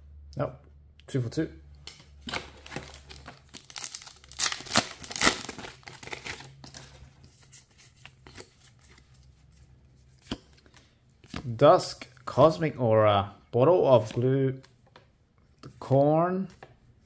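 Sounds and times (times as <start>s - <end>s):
cards being handled: 1.8s - 12.2s
foil wrapper tearing and crinkling: 2.3s - 6.7s.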